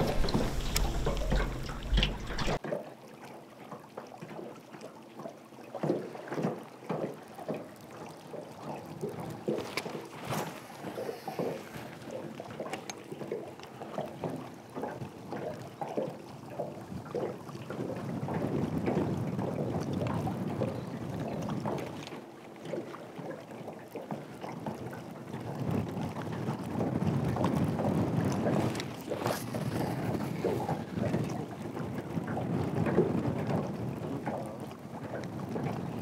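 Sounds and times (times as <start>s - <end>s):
wind gusting over microphone: 0.0s - 2.6s, 26.7s - 34.4s
water lapping against boat hull: 0.0s - 36.0s.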